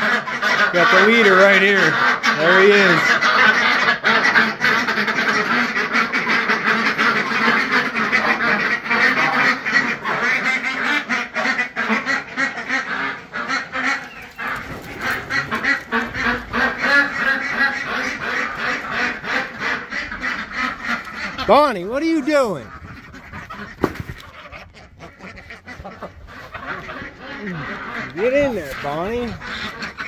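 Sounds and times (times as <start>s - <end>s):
ducks quacking: 0.0s - 30.0s.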